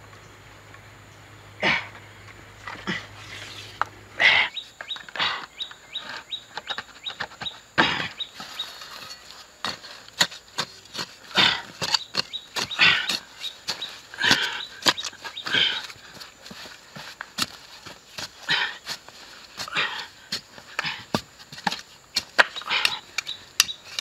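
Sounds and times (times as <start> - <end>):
bird chirping: 0.0 - 16.8, 22.1 - 24.0
hand tool digging soil: 2.6 - 24.0.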